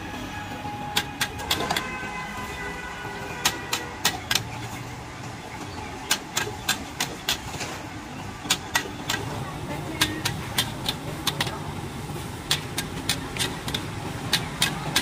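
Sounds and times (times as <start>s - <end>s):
gas burner: 8.5s - 15.0s.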